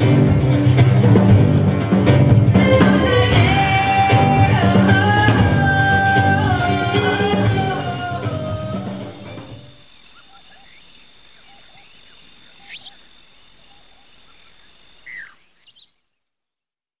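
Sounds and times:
background music: 0.0 - 9.7
animal chirping: 9.0 - 16.0.

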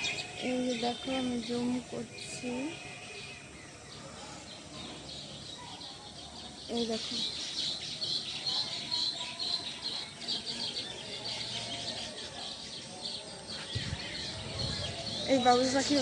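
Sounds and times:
birds chirping and chattering: 0.0 - 16.0
low rumble: 13.8 - 15.3.

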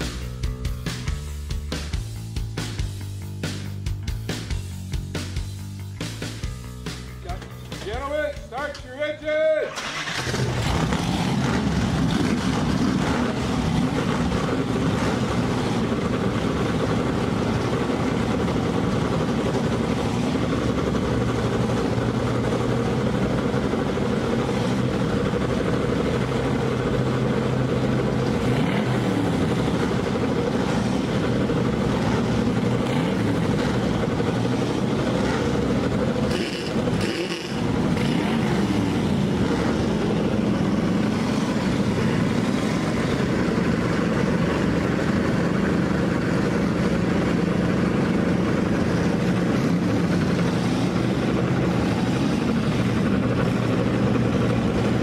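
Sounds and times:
race car engines idling and revving: 0.0 - 55.0.

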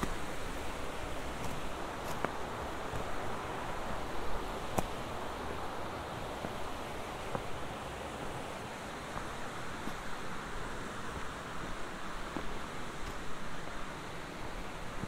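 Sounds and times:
footsteps on stony trail: 0.0 - 3.8, 6.4 - 7.7, 9.1 - 10.3, 11.0 - 13.9
stream rushing over rocks: 0.0 - 15.0.

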